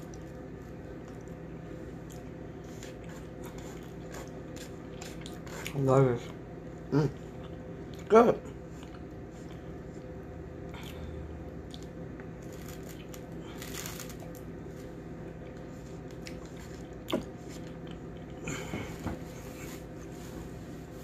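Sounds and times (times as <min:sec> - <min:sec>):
person chewing: 0:00.0 - 0:05.8, 0:07.2 - 0:14.3, 0:15.2 - 0:18.7
low steady hum: 0:00.0 - 0:21.0.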